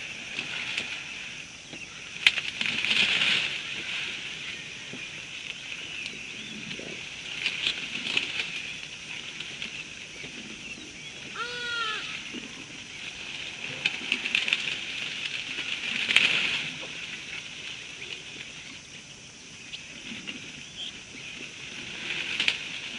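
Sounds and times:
steady high insect chorus: 0.0 - 22.9
short pitched animal call: 11.3 - 12.3.

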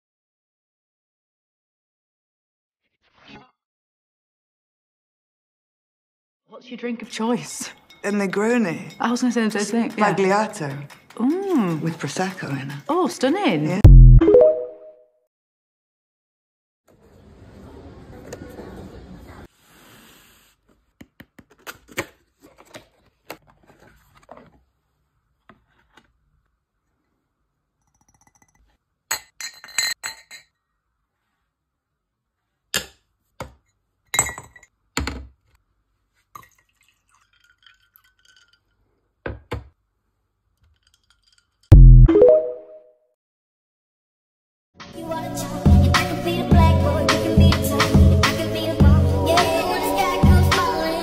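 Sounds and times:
glass tumblers clinking: 7.7 - 12.8, 36.4 - 38.9.

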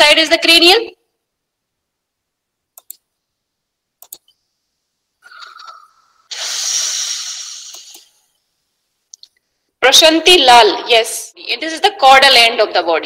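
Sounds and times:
mouse clicks: 2.8 - 3.0, 4.0 - 4.3
hissing whoosh: 6.3 - 8.0.

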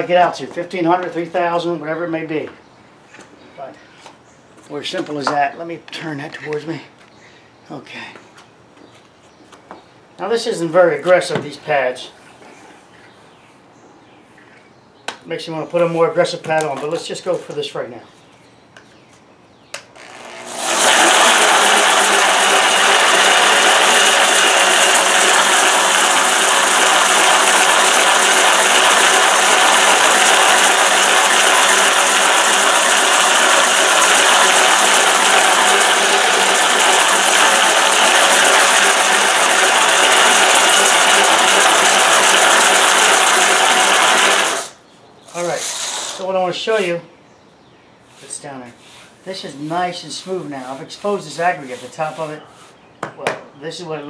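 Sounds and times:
concrete grinder running: 20.0 - 44.8, 45.4 - 46.3.

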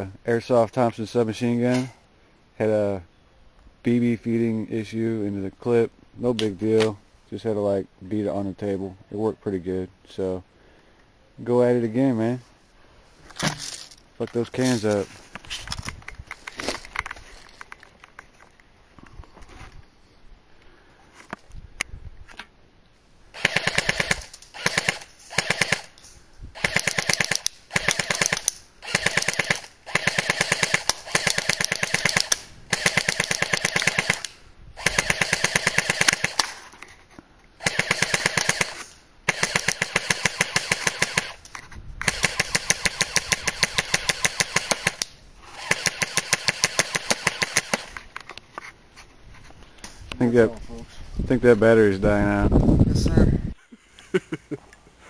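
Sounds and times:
airsoft gun full-auto bursts: 23.3 - 26.0, 26.6 - 36.5, 37.6 - 41.4, 42.0 - 47.9.

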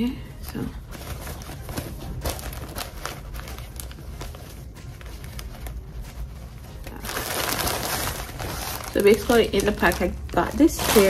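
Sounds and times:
satin bag rustling: 0.4 - 11.0.

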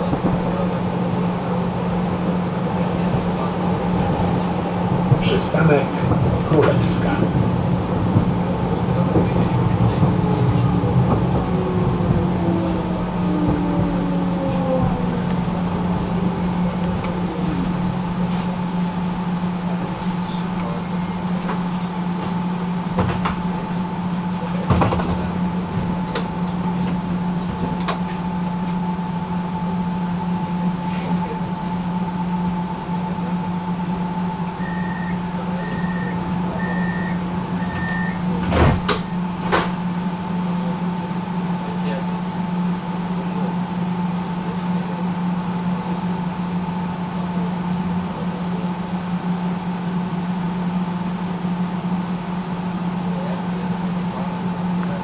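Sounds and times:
tram drive whine: 0.0 - 55.0
steady hum: 3.7 - 24.6
short beeps: 34.6 - 38.2.

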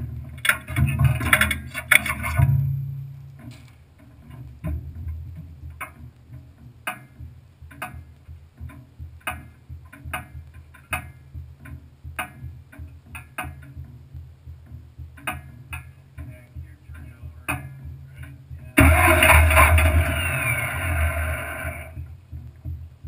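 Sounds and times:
low unsteady rumble: 13.7 - 23.0.

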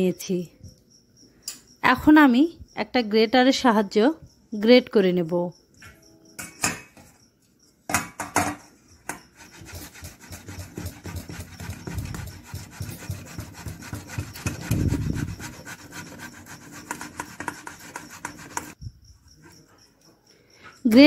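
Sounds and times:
potatoes rasping on metal grater: 9.4 - 18.8.

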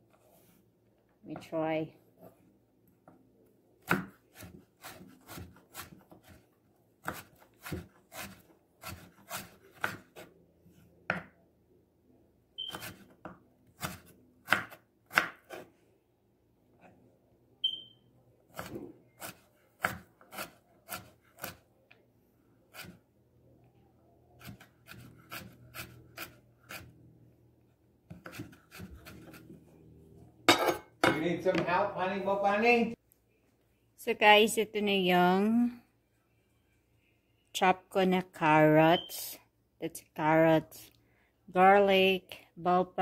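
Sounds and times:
knife chopping on cutting board: 3.8 - 6.4, 7.0 - 10.3, 12.7 - 15.7, 18.5 - 21.6, 28.1 - 29.5.

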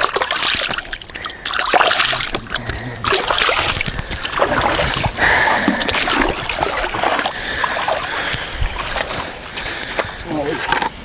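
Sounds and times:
water splashing and dribbling: 0.0 - 11.0.

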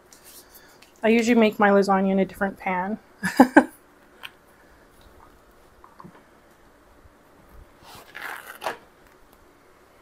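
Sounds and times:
crinkling scrape: 7.8 - 9.2.

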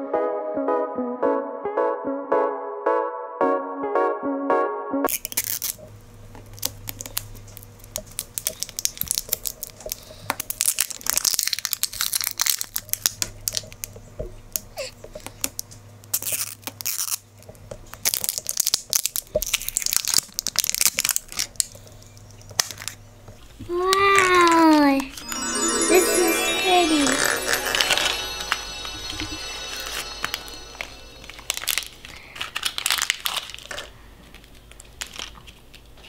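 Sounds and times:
plastic wrapping crackling: 10.4 - 13.6, 18.0 - 21.6, 32.4 - 35.6.

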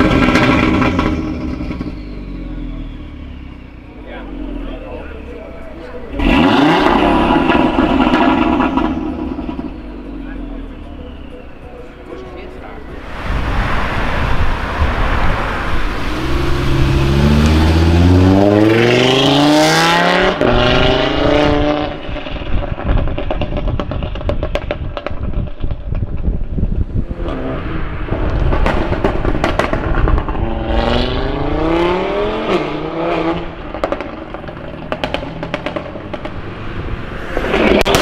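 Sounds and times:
exhaust crackles and pops: 0.0 - 2.1, 6.1 - 10.8, 21.9 - 31.9, 33.4 - 38.0
car engine revving hard: 0.0 - 3.3, 6.1 - 10.3, 13.0 - 24.7, 27.0 - 38.0.

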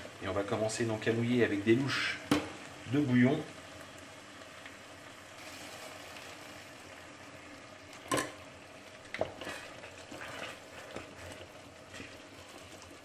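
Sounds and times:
broth sizzling in a pan: 0.0 - 13.0
wooden spoon scraping a pan: 9.1 - 13.0.

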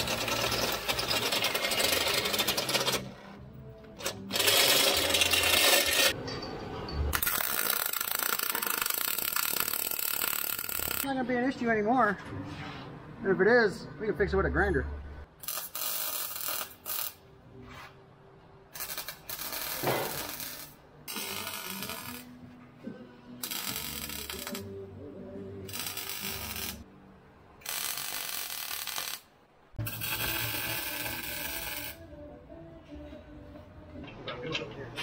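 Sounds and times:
arc welding bursts: 7.2 - 11.1, 15.4 - 17.2, 18.8 - 22.3, 23.4 - 24.7, 25.7 - 26.8, 27.6 - 32.0.

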